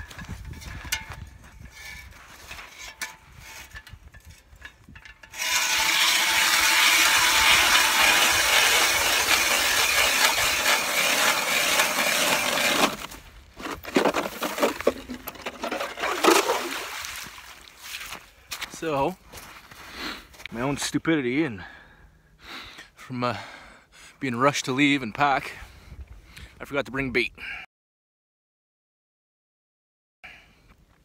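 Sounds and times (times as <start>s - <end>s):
ice chips clinking and knocking: 5.4s - 17.0s.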